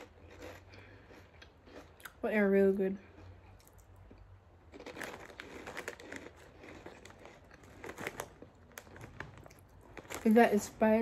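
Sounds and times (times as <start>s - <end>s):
chip bag crinkling: 4.7s - 11.0s.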